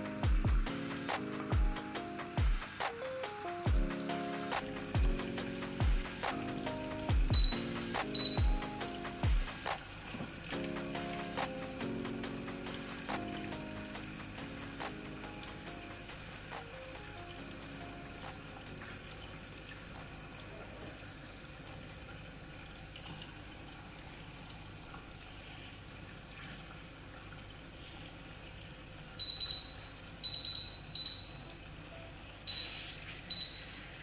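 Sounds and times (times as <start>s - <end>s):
pot bubbling: 3.8s - 20.3s
induction hob beeping: 7.3s - 8.8s, 29.2s - 31.6s, 32.5s - 34.0s.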